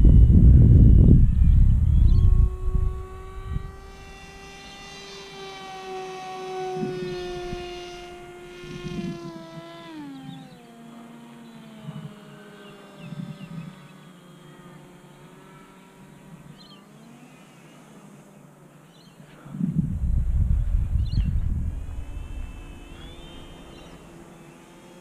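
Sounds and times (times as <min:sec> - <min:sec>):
wind buffeting microphone: 0:00.0 - 0:10.6, 0:11.7 - 0:14.0, 0:19.4 - 0:24.7
model plane motor whining: 0:00.0 - 0:25.0
short low rumble: 0:19.5 - 0:24.1.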